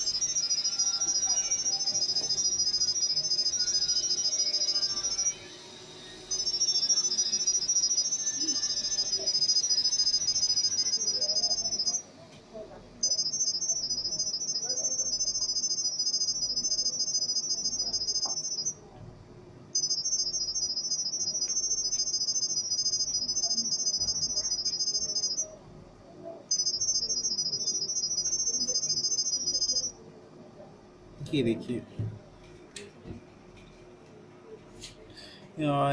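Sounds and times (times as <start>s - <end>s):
high-pitched warbling chirp: 0.0s - 5.5s, 6.3s - 12.0s, 26.5s - 29.9s.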